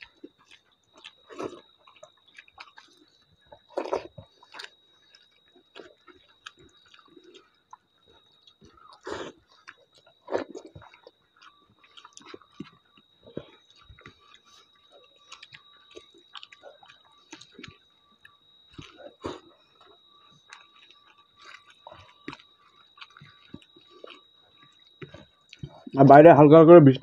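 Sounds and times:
chewing with lip smacks: 0.0s - 26.0s
faint high whine: 0.0s - 27.0s.

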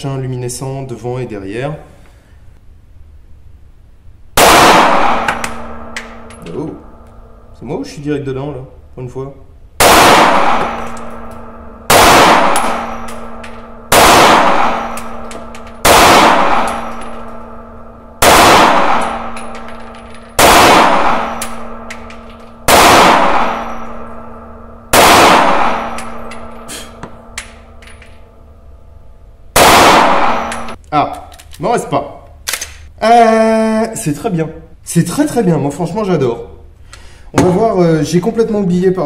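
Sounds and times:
pistol shots with ringing decay: 4.4s - 7.5s, 9.8s - 28.6s, 29.5s - 30.8s.

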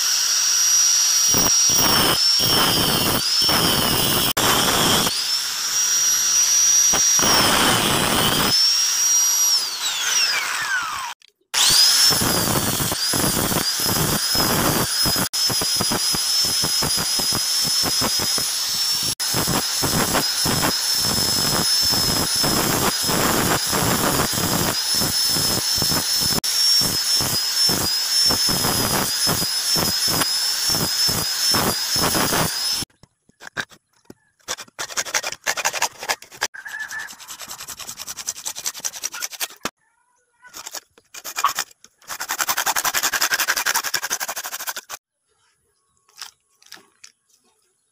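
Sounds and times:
angle grinder grinding metal: 0.0s - 39.8s, 40.5s - 45.0s
hacksaw on metal: 34.4s - 39.8s, 40.5s - 45.0s.

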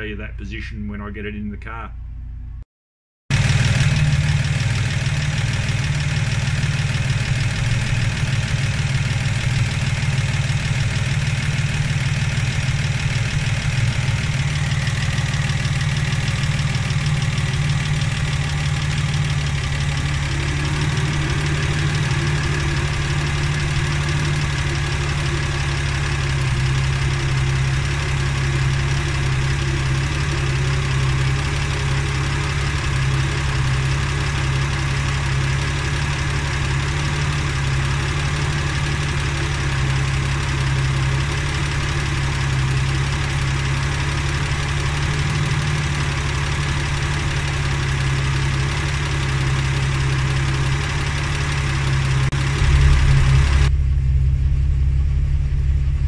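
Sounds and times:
car engine idling: 3.3s - 56.0s
faint higher hum: 52.6s - 56.0s.

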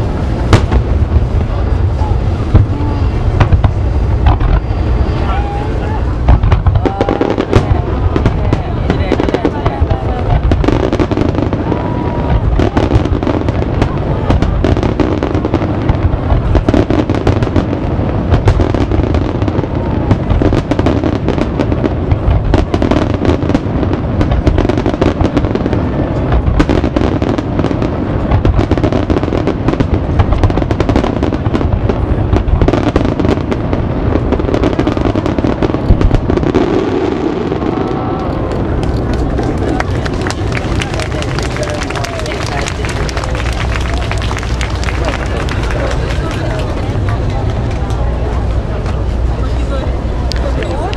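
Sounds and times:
fireworks booming and crackling: 0.0s - 50.9s.

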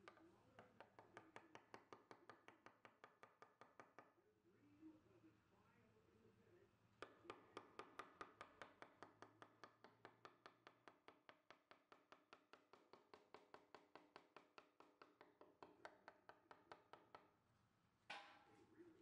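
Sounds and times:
wooden mallet tapping gouge: 0.0s - 4.1s, 7.0s - 17.3s.

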